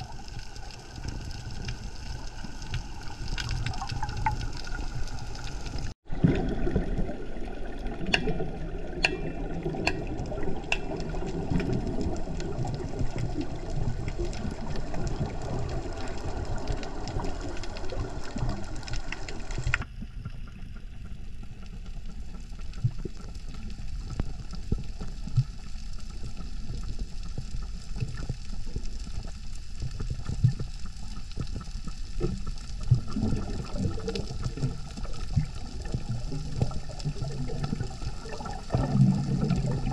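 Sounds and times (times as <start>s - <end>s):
underwater wash with bubbling: 0.0s - 39.9s
underwater clicks: 8.0s - 20.4s.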